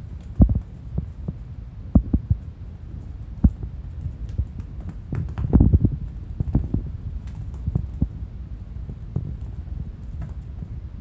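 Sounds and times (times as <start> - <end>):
kitten paws thumping on mats: 3.4 - 8.2, 8.8 - 10.7.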